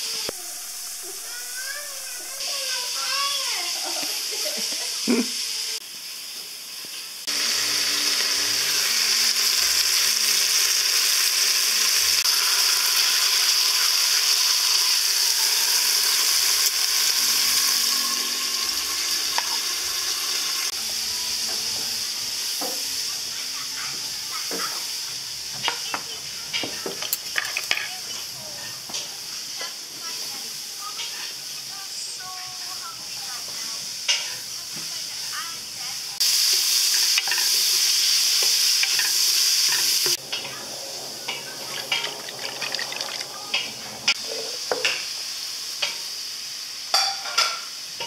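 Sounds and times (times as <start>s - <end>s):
meat sizzling in hot fat: 0.0s - 48.0s
metal utensils clicking: 26.5s - 28.0s, 36.9s - 37.6s, 38.8s - 40.6s, 41.3s - 44.2s.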